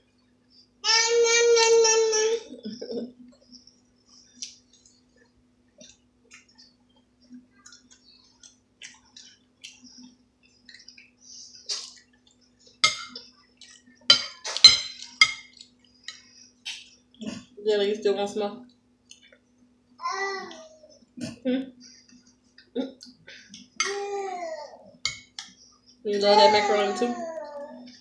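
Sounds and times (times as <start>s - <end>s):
metal spoon clinking on dishes: 14.1s - 16.2s.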